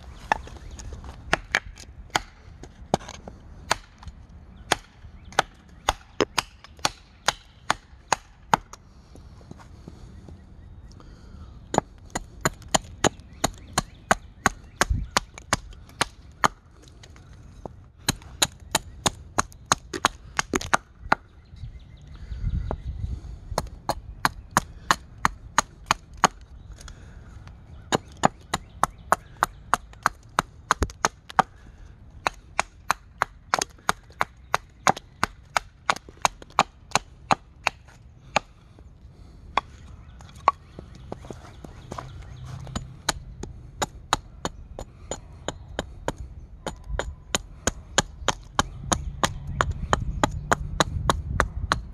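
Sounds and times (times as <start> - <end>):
axe chopping wood: 1.3 - 4.1, 4.7 - 8.8, 18.0 - 21.3, 32.2 - 38.6, 42.6 - 51.9.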